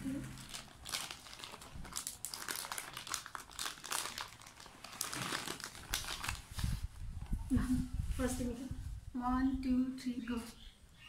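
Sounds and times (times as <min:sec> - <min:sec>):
plastic bag crinkling: 0:00.0 - 0:06.9.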